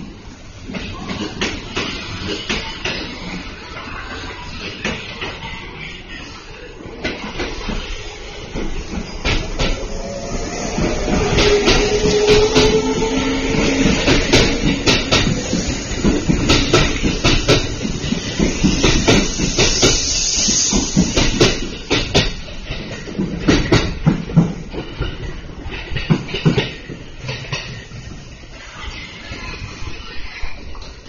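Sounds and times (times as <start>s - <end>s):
train rumble: 0.0s - 31.0s
train wheels clacking over rail joints: 7.0s - 28.4s.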